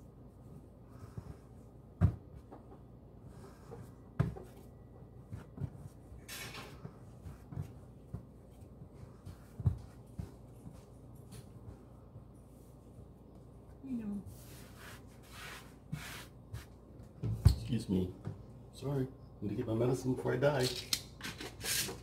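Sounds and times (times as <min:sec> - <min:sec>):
dough thudding on countertop: 0:02.0 - 0:02.7, 0:04.2 - 0:04.6.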